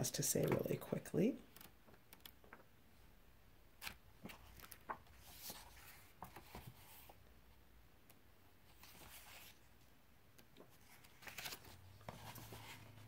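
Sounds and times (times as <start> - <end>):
book pages turning: 3.8 - 7.2, 8.6 - 9.7, 10.3 - 13.0.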